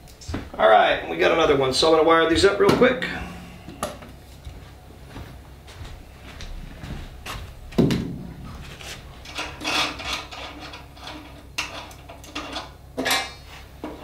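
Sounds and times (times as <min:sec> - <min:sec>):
heavy knock on workbench: 0:07.8 - 0:08.6
cables scraping and clicking: 0:08.5 - 0:12.7.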